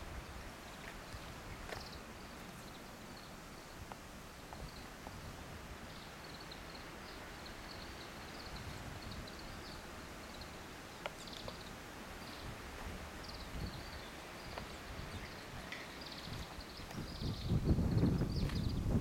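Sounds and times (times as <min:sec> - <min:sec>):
steady low hiss: 0:00.0 - 0:19.0
soft ticks: 0:11.0 - 0:11.7.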